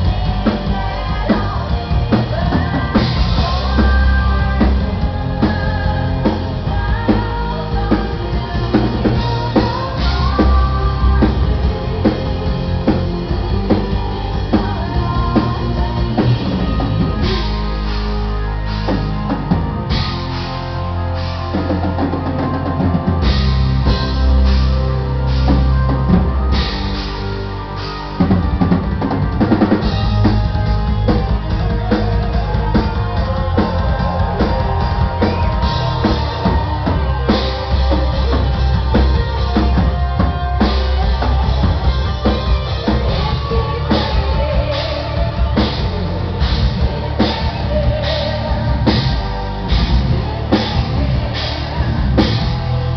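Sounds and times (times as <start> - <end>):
distorted guitars: 0.0 - 52.9
drum kit with bass drum: 0.0 - 52.9
metal band playing live: 0.0 - 52.9.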